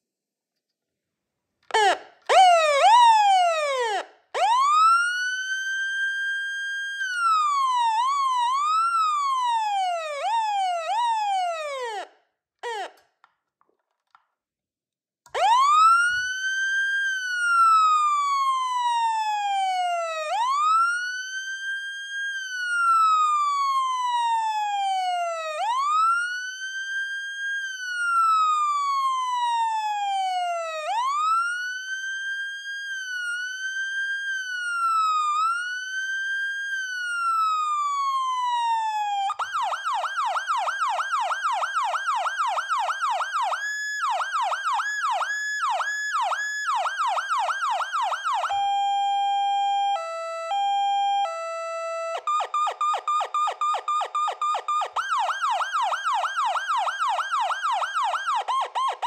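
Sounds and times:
electronic siren wailing and yelping: 1.7s - 13.0s, 15.4s - 21.0s, 32.8s - 36.2s, 37.0s - 59.0s.

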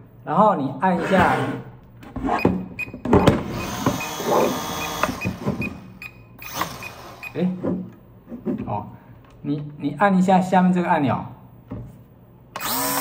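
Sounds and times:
small electric motors whirring: 3.5s - 5.5s, 12.6s - 13.0s.

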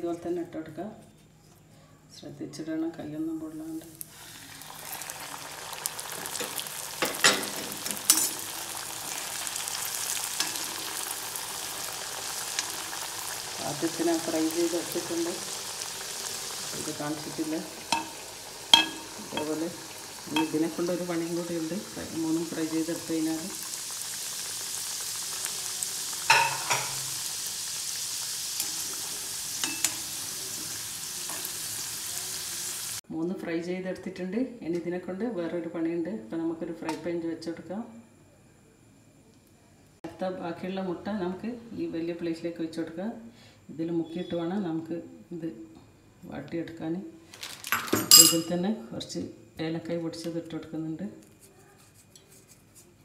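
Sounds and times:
oil sizzling deep-frying: 3.8s - 33.0s
metal spoon knocking against pan: 17.9s - 19.5s, 20.4s - 20.6s.

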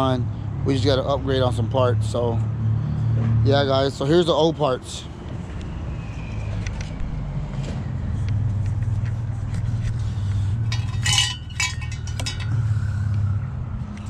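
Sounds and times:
steady low hum: 8.0s - 14.0s
metal pipes clinking and rattling: 10.3s - 12.8s.

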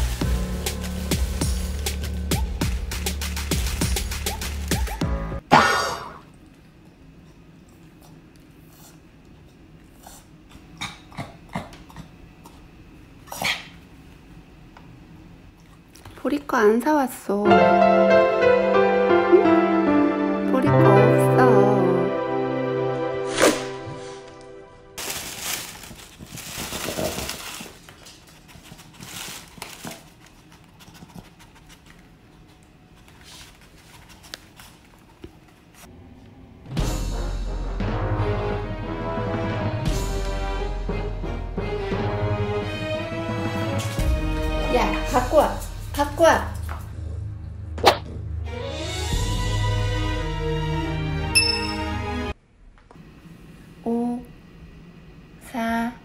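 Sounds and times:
dog whining: 4.3s - 5.2s
plastic bag rustling: 25.0s - 30.7s.

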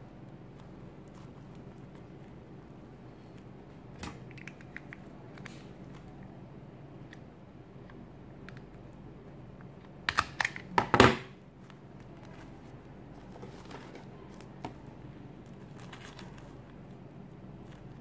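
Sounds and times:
fabric rustling: 11.6s - 18.0s.

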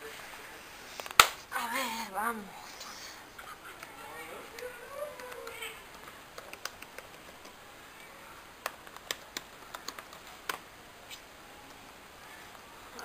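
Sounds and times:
laptop keyboard typing: 8.6s - 10.6s.

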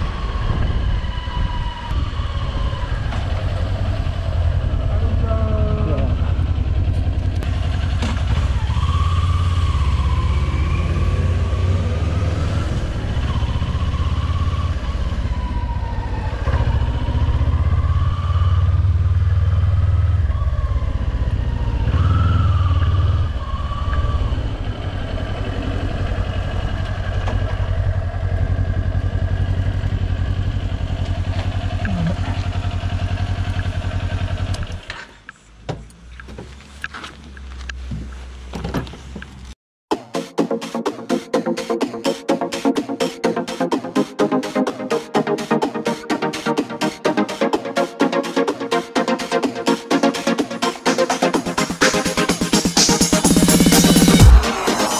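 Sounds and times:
motorcycle engine riding: 0.0s - 39.6s.

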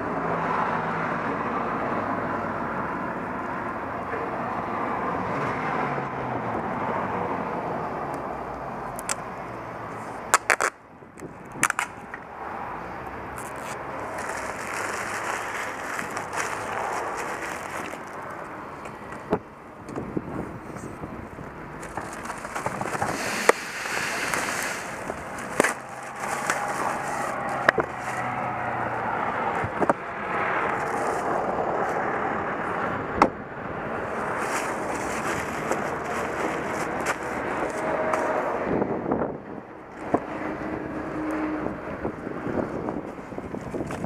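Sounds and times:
plastic sheet rustling: 13.4s - 18.4s, 21.8s - 28.3s, 34.1s - 37.8s.

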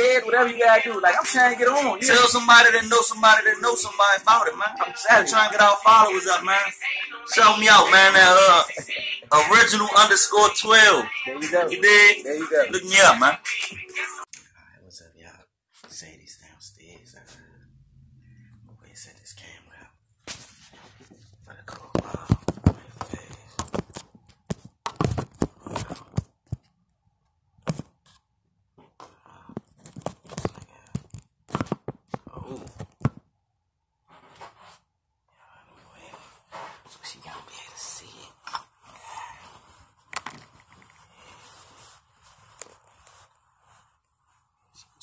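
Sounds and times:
phone handling rustling: 40.1s - 41.0s.

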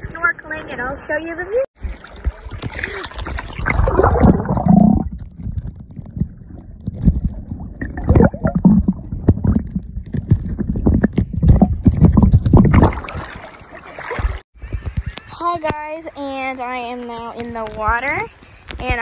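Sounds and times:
muffled underwater rumbling: 1.8s - 15.0s.

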